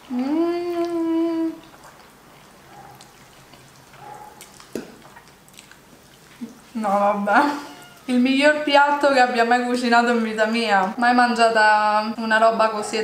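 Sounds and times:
faint chewing with mouth clicks: 0.0 - 6.8
woman humming with pleasure: 0.1 - 1.6.

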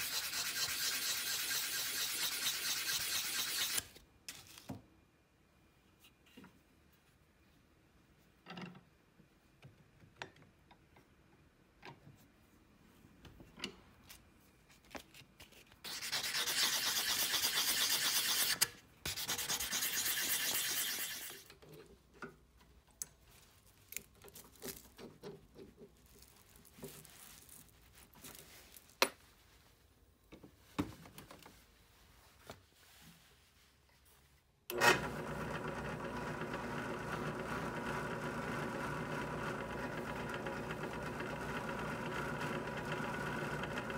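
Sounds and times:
file rasping on metal: 0.0 - 3.8, 15.9 - 21.4
drill press motor running: 34.7 - 43.9.

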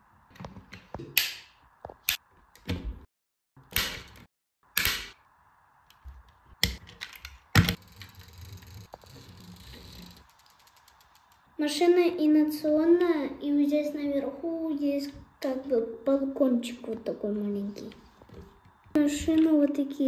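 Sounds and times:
toy car doors snapping shut: 3.7 - 4.1, 4.7 - 5.1
toy wheels rolling on tabletop: 7.6 - 11.5.

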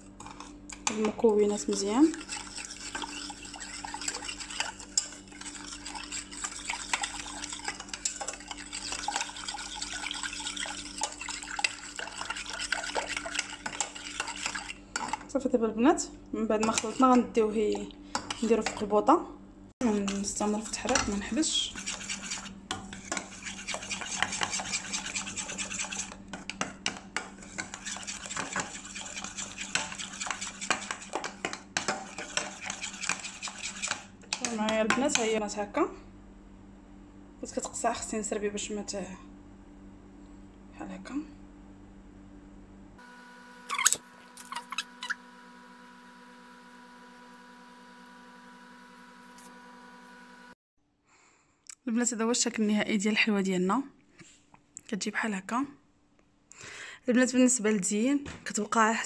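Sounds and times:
metal spoon stirring in saucepan: 0.2 - 15.3, 16.5 - 18.8, 19.8 - 35.4.

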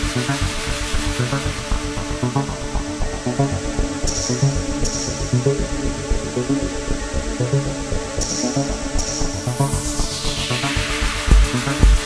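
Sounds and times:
electronic dance music: 8.2 - 12.0.

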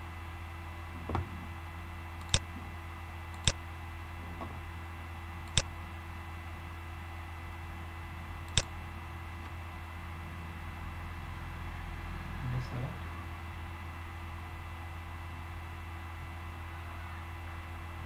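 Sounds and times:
low electrical hum: 0.0 - 18.0
computer mouse clicks: 2.2 - 2.5, 3.3 - 3.6, 5.4 - 5.7, 8.5 - 8.7.

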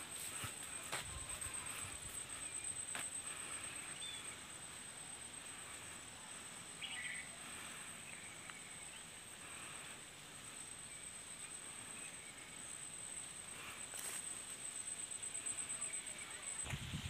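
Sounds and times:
bird chirps: 6.8 - 7.4.

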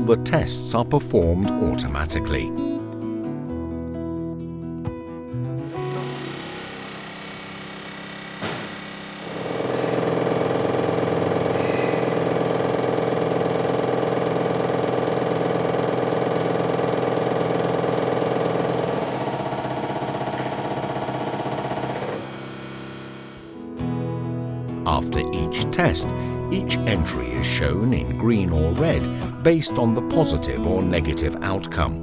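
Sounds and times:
fast mechanical chatter: 5.9 - 23.5.

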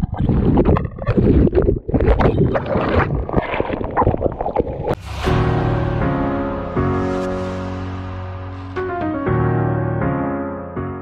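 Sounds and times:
music: 5.0 - 11.0.

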